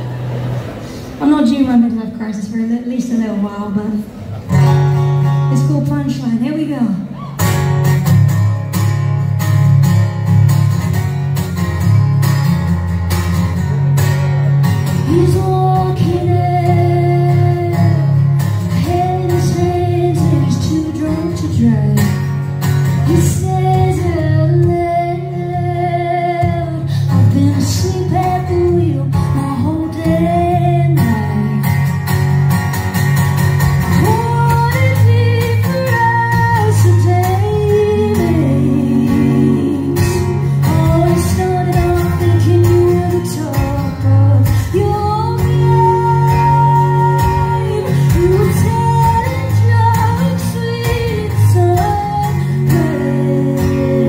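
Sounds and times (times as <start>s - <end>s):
strummed acoustic guitar: 0.0s - 54.0s
electric guitar: 7.0s - 54.0s
woman singing: 15.0s - 22.3s, 22.9s - 32.0s, 33.9s - 54.0s.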